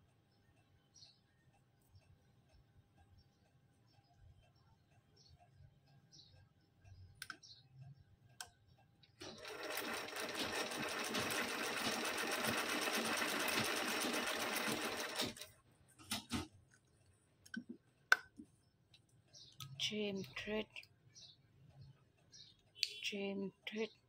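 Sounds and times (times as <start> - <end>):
sewing machine mechanism clicks: 9.2 - 15.5
sewing machine stitching: 9.2 - 15.5.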